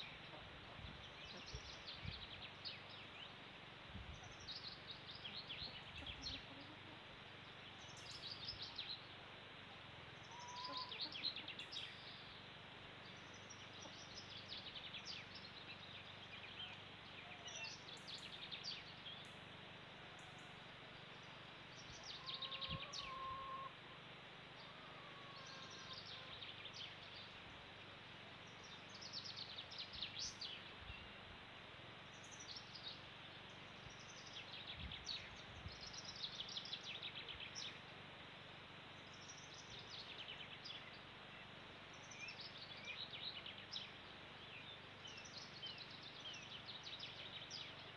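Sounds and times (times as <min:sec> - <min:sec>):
faint steady background hiss: 0:00.0 - 0:47.9
songbirds chirping and trilling: 0:00.0 - 0:47.9.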